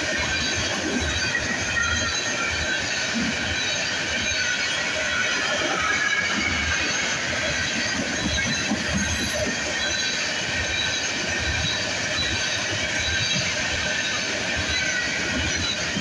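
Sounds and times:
train wheels rumbling on rails: 0.0 - 16.0
faint high wheel squeal: 0.2 - 16.0.

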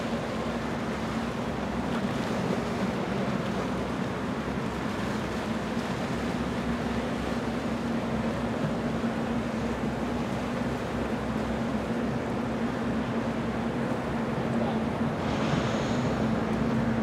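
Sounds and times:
speedboat engines droning: 0.0 - 17.0.

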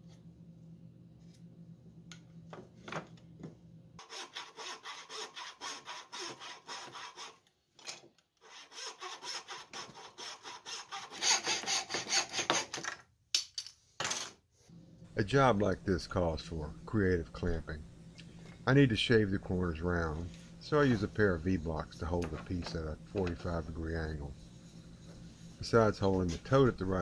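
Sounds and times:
bow saw cutting wood: 4.0 - 7.4, 8.4 - 12.7.

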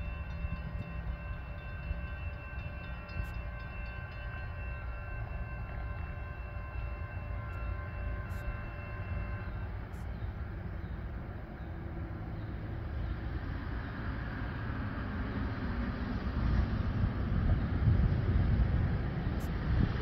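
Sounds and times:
freight train rumbling: 0.0 - 20.0.

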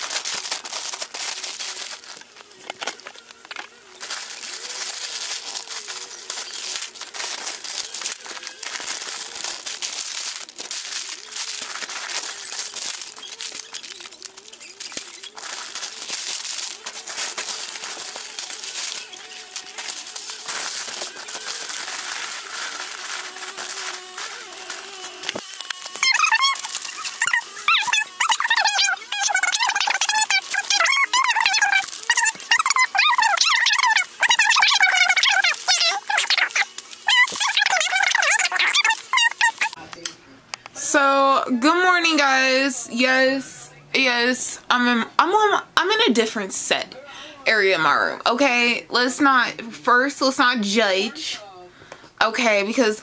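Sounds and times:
plastic candy wrappers crinkling: 0.0 - 39.8.

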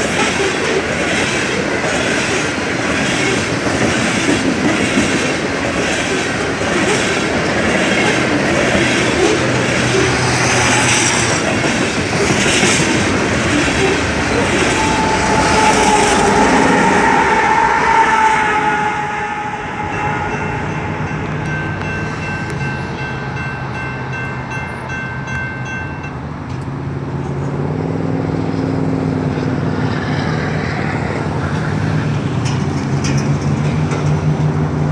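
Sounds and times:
diesel locomotive passing: 0.0 - 34.9
low rumble of road traffic: 0.0 - 34.9
distant train horn: 12.8 - 23.6.

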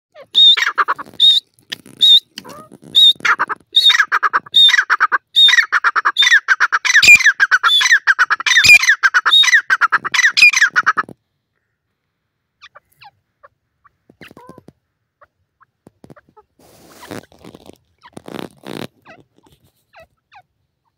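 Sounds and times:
francolin calling: 0.1 - 11.0.

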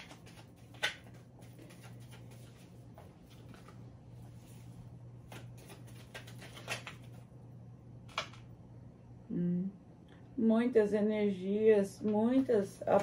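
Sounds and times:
cards shuffling: 0.0 - 3.8, 5.2 - 7.2
steady low hum: 0.0 - 13.0.

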